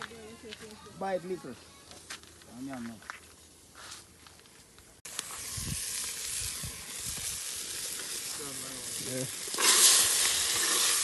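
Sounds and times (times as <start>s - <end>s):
food sizzling in pot: 5.1s - 11.0s.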